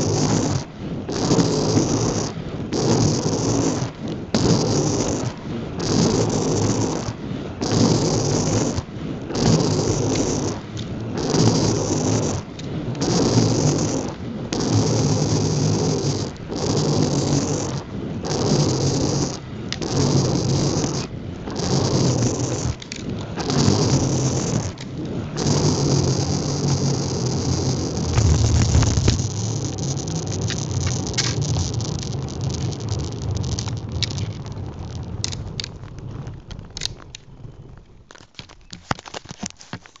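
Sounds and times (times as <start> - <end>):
skate wheels rolling on asphalt: 0.0 - 40.0
wind on microphone: 27.7 - 31.2.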